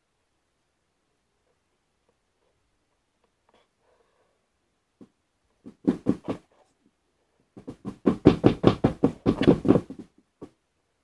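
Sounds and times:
rapid knocking on a tabletop: 5.6 - 6.5, 7.6 - 10.6.

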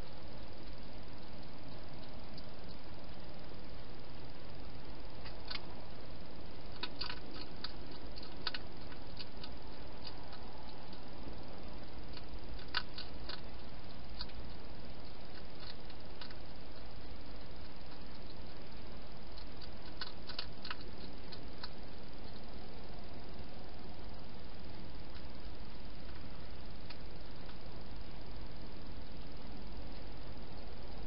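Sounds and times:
microphone hiss: 0.0 - 31.0
hedgehog eating clicks and smacks: 5.2 - 5.7, 6.7 - 11.1, 12.0 - 22.5.

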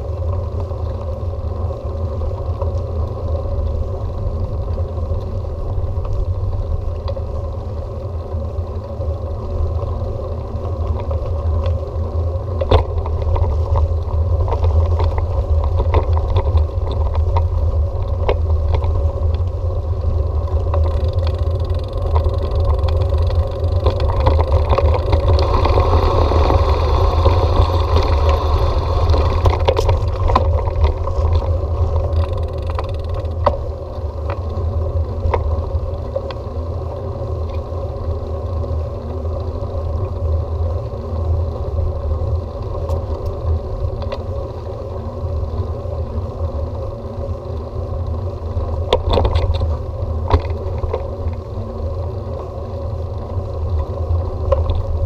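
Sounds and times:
bike rattles and clicks: 0.0 - 55.0
wind and tyres rumbling: 0.0 - 55.0.

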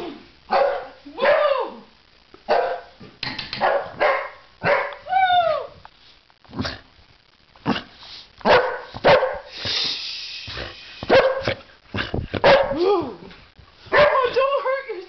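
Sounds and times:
dog barking in play: 0.5 - 1.6, 2.5 - 3.0, 3.6 - 5.1, 7.6 - 9.5, 11.0 - 11.7, 12.3 - 12.9, 13.9 - 14.4.

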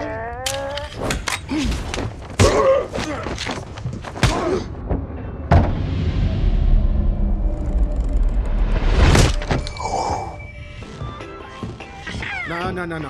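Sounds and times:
punches and body thumps: 1.7 - 5.7.

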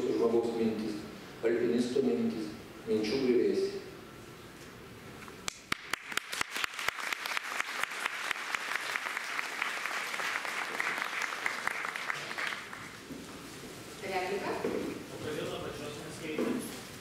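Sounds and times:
audience applauding: 5.5 - 13.1.

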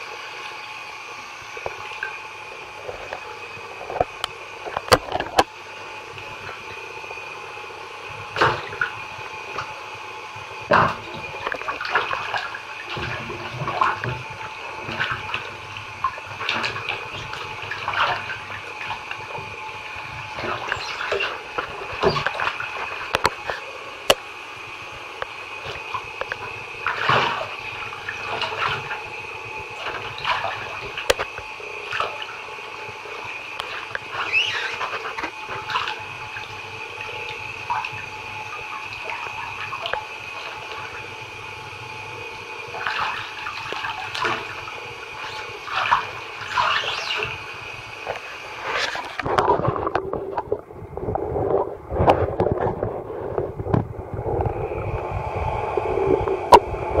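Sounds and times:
bath tap running: 0.0 - 57.0
feet splashing through water: 33.6 - 36.5, 42.8 - 44.6, 45.2 - 47.3.

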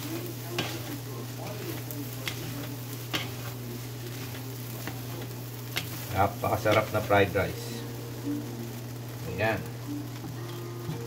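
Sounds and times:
wooden spatula scraping wok: 0.0 - 7.8
faint sizzle: 0.0 - 11.0.

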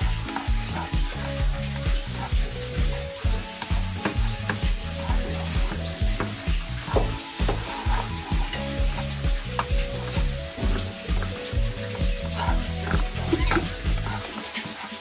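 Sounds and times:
background music with beat: 0.0 - 15.0
garlic sizzling in hot oil: 0.0 - 15.0
spatula scraping a pan: 0.1 - 11.0.

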